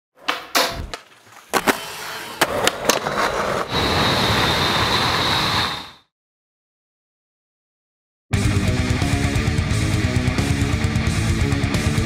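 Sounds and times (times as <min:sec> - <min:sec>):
skateboard clacking on concrete: 0:00.2 - 0:03.3.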